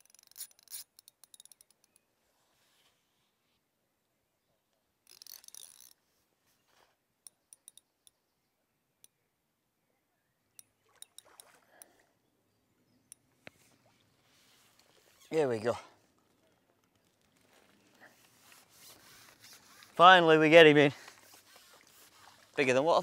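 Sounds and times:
faint water splashes: 10.6s - 12.3s, 13.3s - 23.0s.

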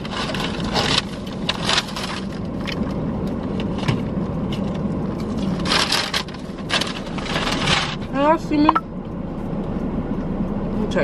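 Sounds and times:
paper bag crinkling: 0.0s - 2.6s, 5.4s - 8.0s
car air conditioning hum: 0.0s - 11.0s.

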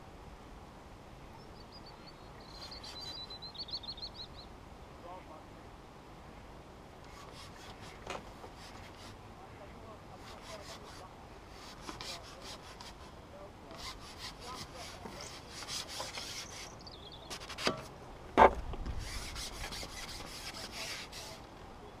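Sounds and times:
scratchy rubbing of pole and clothing: 7.1s - 9.2s, 10.1s - 21.4s.

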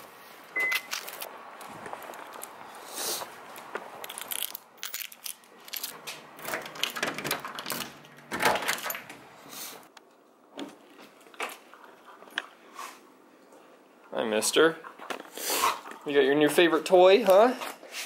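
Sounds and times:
door lock clicking and rattling: 4.1s - 9.3s.

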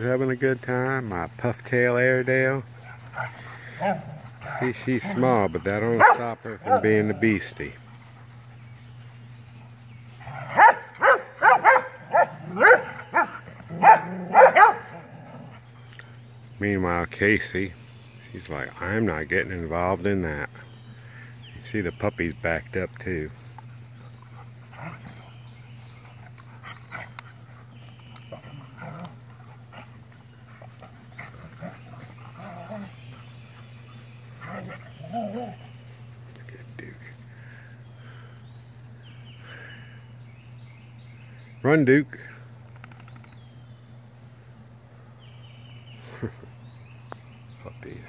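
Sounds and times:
steady low hum: 0.0s - 48.0s
dogs barking in play: 2.6s - 15.9s, 23.3s - 36.4s.

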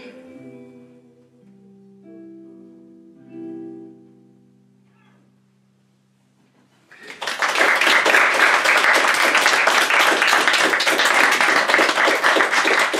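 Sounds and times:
guitar chord ringing: 1.5s - 6.0s
audience applause: 6.9s - 12.9s.

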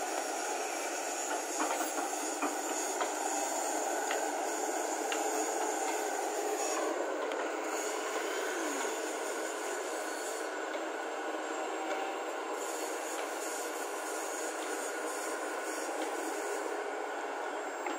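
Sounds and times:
excavator diesel engine and hydraulics: 0.0s - 17.9s.

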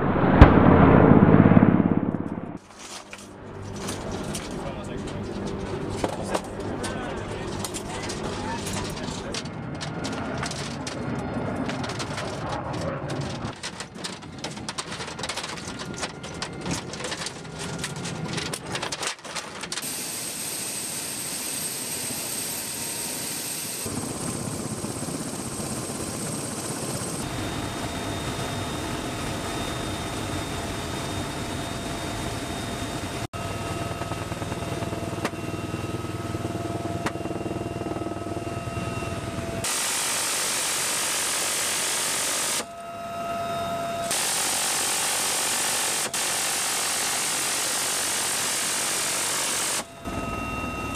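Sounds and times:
helicopter turbine whine and rotor: 0.0s - 2.6s, 3.2s - 13.6s, 19.7s - 50.9s
minigun firing roar: 0.0s - 2.6s.

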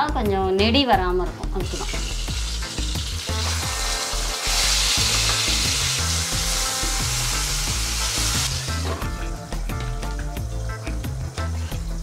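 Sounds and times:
background music: 0.0s - 12.0s
fish sizzling in hot oil: 1.6s - 9.6s.

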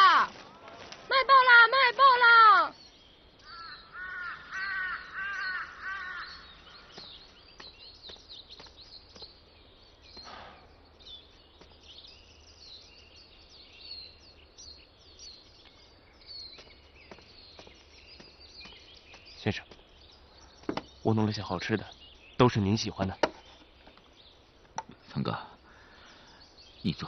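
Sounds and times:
small birds chirping: 0.0s - 27.0s
crow cawing: 3.4s - 7.1s.

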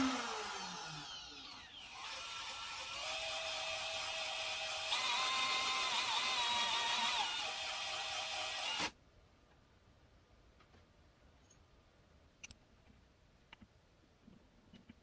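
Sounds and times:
rotary tool whining while grinding: 0.0s - 8.9s.

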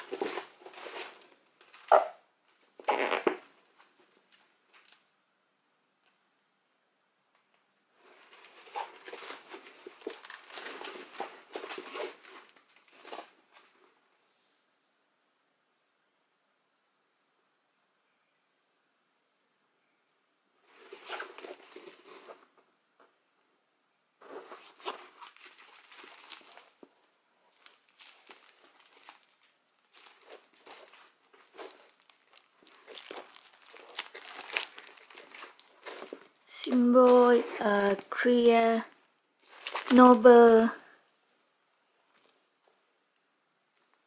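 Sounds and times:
plastic film crinkling: 0.0s - 5.0s, 8.0s - 13.8s, 24.2s - 40.8s, 42.0s - 42.6s.

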